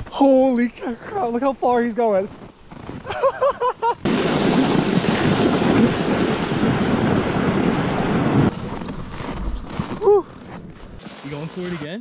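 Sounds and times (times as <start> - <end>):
sled running over packed snow: 0.4 - 12.0
person laughing: 3.0 - 4.1
wind on microphone: 4.0 - 11.0.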